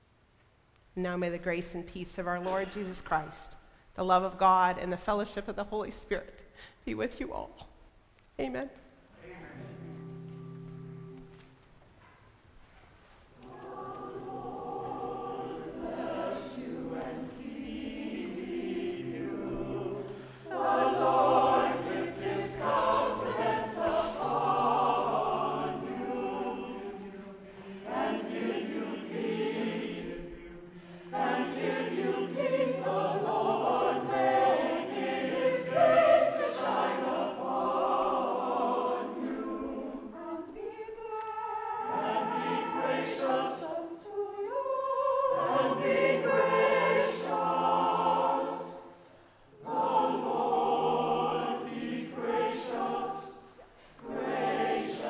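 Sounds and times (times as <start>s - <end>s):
choir singing: 9.2s - 11.3s, 13.4s - 55.0s.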